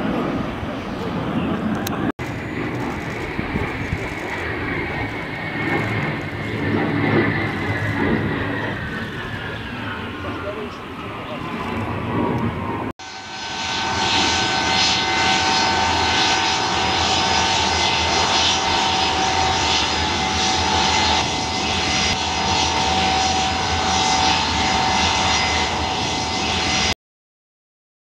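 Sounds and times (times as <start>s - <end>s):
high steady engine whine: 0.0s - 27.0s
jet engines roaring: 0.0s - 27.0s.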